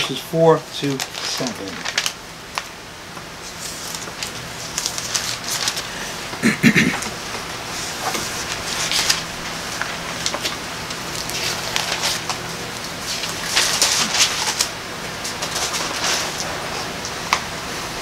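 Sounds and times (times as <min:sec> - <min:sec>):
paper pages turning: 0:01.0 - 0:02.2, 0:03.4 - 0:05.9, 0:08.0 - 0:16.5.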